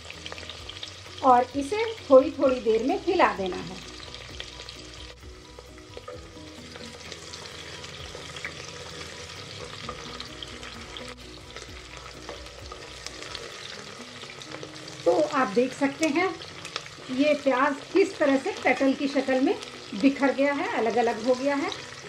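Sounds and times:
onions sizzling in hot oil: 0.0 - 22.0.

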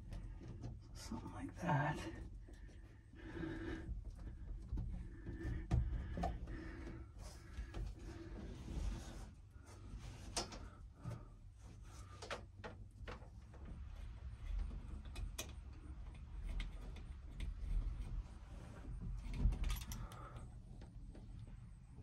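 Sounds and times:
light clicks and taps: 14.4 - 18.2.

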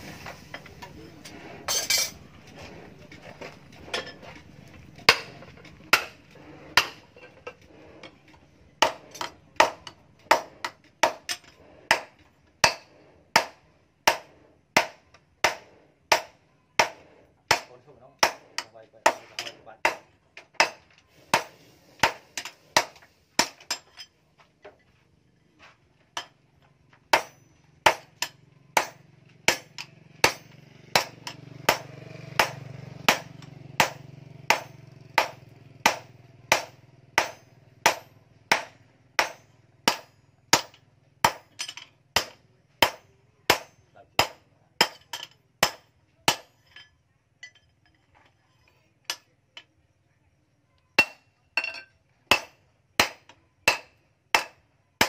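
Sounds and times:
hammer striking metal on anvil: 5.0 - 6.2, 6.8 - 7.2, 8.8 - 24.1, 27.1 - 46.9, 51.0 - 54.6.

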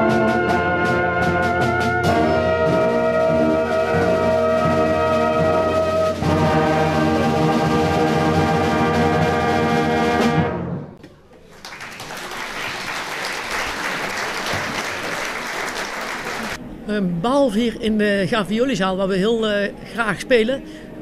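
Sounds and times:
wind band playing chords: 0.0 - 10.9, 14.9 - 16.6
audience applause: 11.3 - 16.6.

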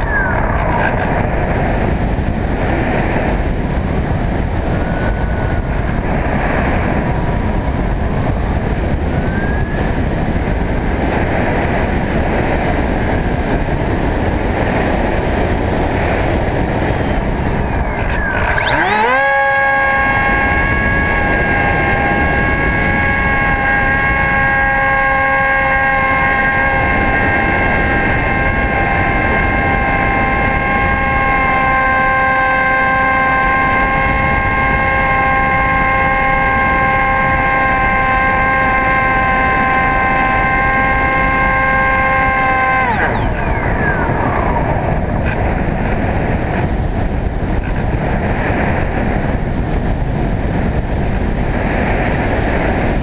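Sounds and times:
electric motor whine: 0.0 - 47.8
wind rushing over camera: 0.0 - 53.0.

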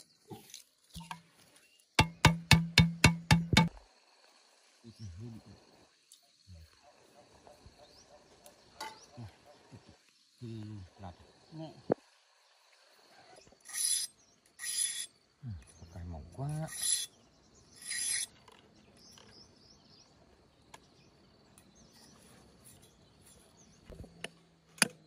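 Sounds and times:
machete scraping bamboo: 13.5 - 15.2, 16.6 - 18.5.

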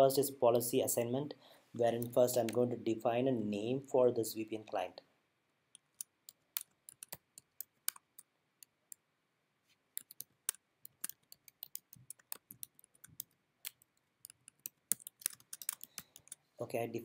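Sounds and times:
computer keyboard typing: 6.0 - 8.3, 10.0 - 16.4.

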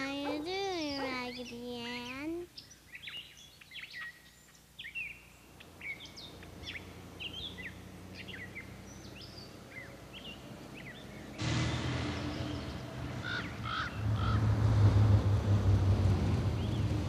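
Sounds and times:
small birds chirping: 0.0 - 11.4
loud low rumble: 11.4 - 17.0.

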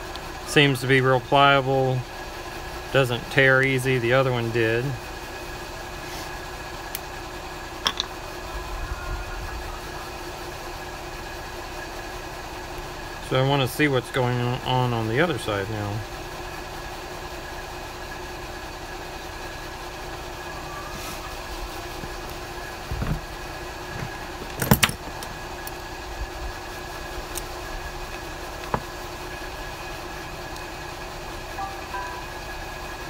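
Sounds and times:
steady mechanical hum: 0.0 - 33.0
sharp clicks and knocks: 24.0 - 25.3.

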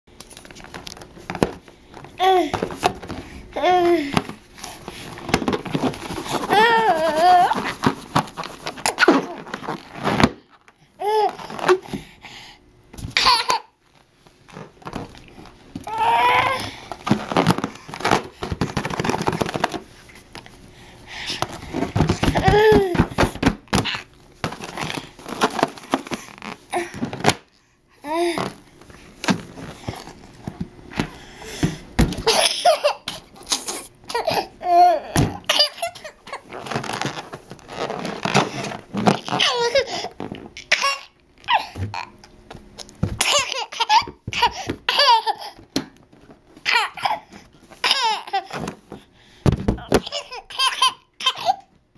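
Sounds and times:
rubber balloon squeaking: 5.6 - 11.9, 21.5 - 26.8, 33.4 - 42.1
toddler giggling: 43.2 - 45.6.

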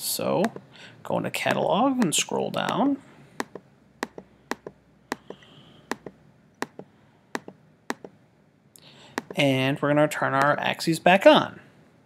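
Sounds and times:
computer mouse clicking: 3.4 - 8.1.

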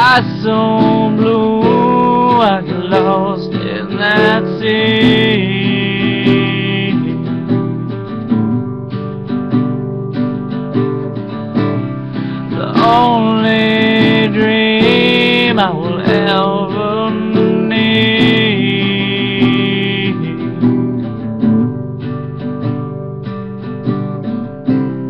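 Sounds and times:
man singing: 0.0 - 8.0, 12.1 - 21.2
strummed acoustic guitar: 0.0 - 25.0.

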